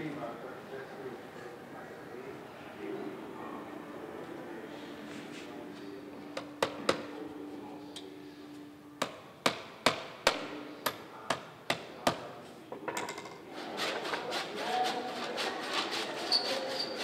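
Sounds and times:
hammer striking wooden pole: 9.0s - 12.3s
hand saw rasping through wood: 13.5s - 17.0s.

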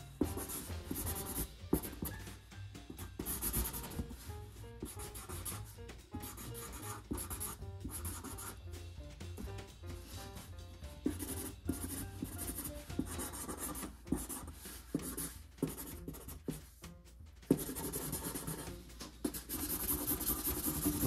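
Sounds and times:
marker scratching on cardboard: 0.0s - 8.6s, 9.2s - 16.9s, 17.5s - 21.0s.

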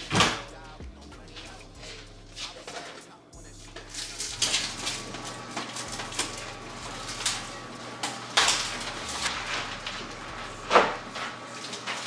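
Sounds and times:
packaging rustling: 3.9s - 12.0s.

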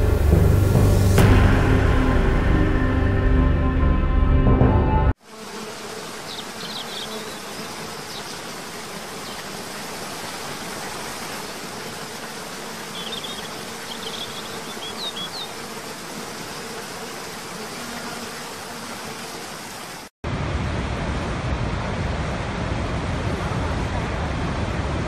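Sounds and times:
high bird chirps: 13.0s - 15.5s.

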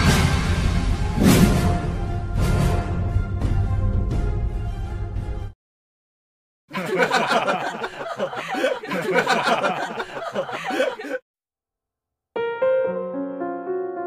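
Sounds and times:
person chuckling: 6.7s - 11.2s.

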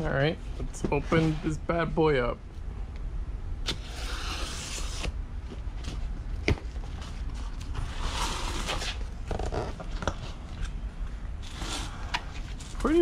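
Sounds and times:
knife cutting cardboard: 3.7s - 5.2s
cardboard creaking: 7.8s - 10.3s.

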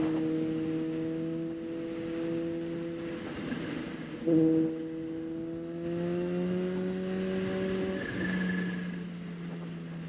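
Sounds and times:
motorcycle engine accelerating: 0.0s - 10.0s.

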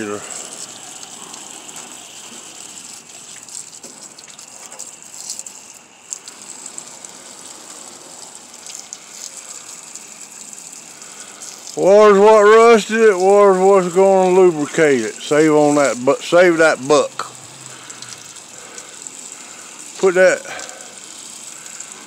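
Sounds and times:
hose spraying on sheet metal: 0.0s - 22.0s.

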